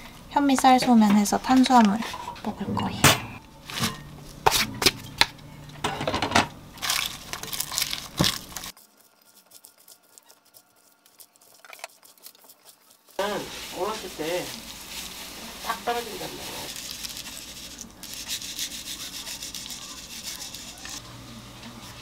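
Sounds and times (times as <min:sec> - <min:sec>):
lettuce leaves rustling: 0:06.8 - 0:11.5, 0:12.1 - 0:22.0.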